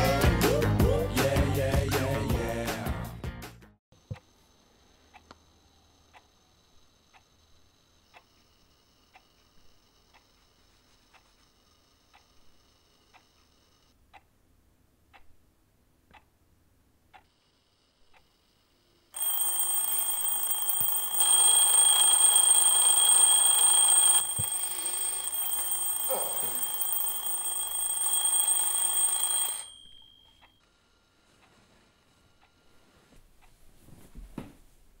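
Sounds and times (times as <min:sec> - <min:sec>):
alarm clock ticking: 0:05.1 - 0:14.2, 0:19.2 - 0:30.8
alarm clock bells ringing: 0:19.2 - 0:30.6.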